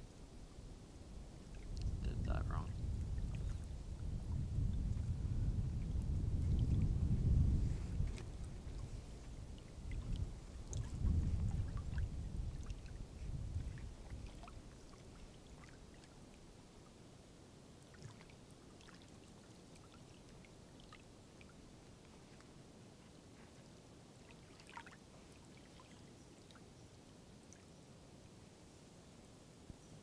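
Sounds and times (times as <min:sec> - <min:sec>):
wind gusting over microphone: 0:01.5 - 0:14.5.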